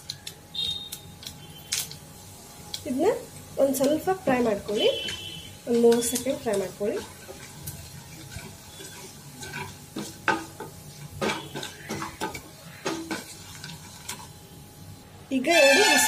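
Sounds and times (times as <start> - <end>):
seeds sizzling in oil: 0.0 - 16.0
spatula scraping pan: 4.4 - 14.3, 15.5 - 16.0.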